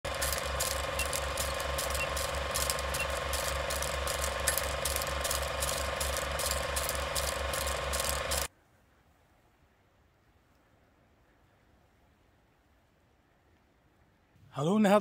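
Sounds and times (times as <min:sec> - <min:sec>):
film projector clattering: 0:00.0 - 0:08.5
steady hum: 0:00.0 - 0:08.5.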